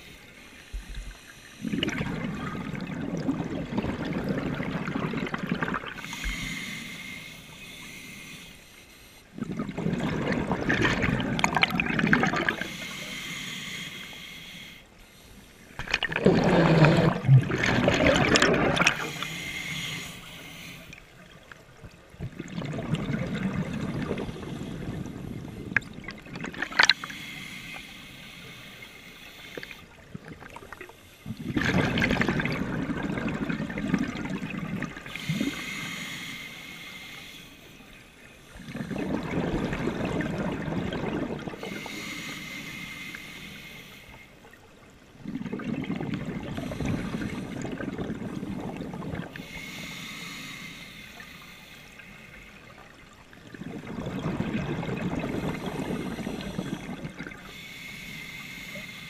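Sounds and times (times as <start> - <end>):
exhaled bubbles rushing: 1.6 - 6.1, 9.4 - 12.7, 15.8 - 19.2, 22.2 - 27.0, 30.1 - 35.6, 38.6 - 41.6, 45.2 - 49.4, 53.4 - 57.4
regulator inhalation hiss: 6.0 - 9.3, 12.5 - 15.7, 19.0 - 21.0, 27.0 - 29.8, 35.1 - 38.6, 41.6 - 44.4, 49.4 - 52.7, 55.4 - 59.0.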